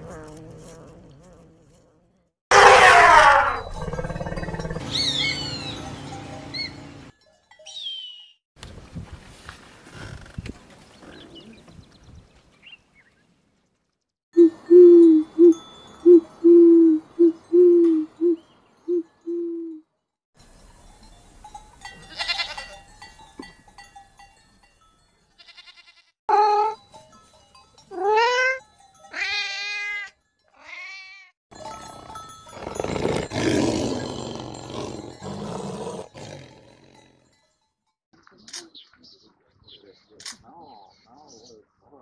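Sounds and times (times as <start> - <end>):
lion roaring: 2.5 - 4.9, 32.6 - 37.0
goat bleating: 22.1 - 22.7, 25.4 - 26.1.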